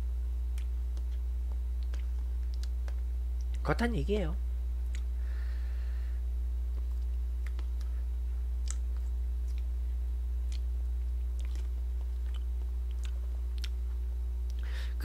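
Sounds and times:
low hum: 0.0s - 15.0s
chewing: 0.5s - 3.6s, 6.7s - 8.0s, 8.6s - 9.7s, 10.4s - 14.6s.

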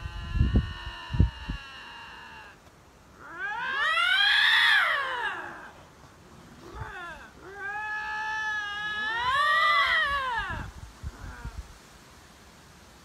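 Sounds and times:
lynx yowling: 0.0s - 2.6s, 3.2s - 5.8s, 6.6s - 11.6s.

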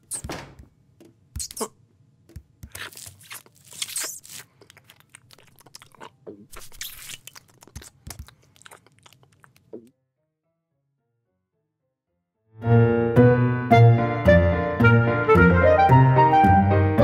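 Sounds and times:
cartoon cat crunching and chewing: 2.4s - 9.9s.

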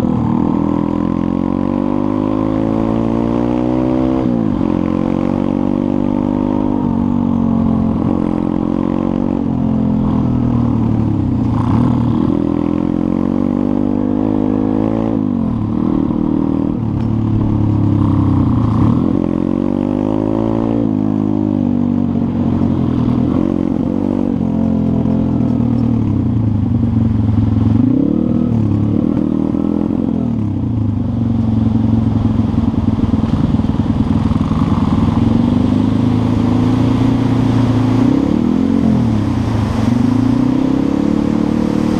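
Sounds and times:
motorbike engine revving: 22.3s - 41.9s.

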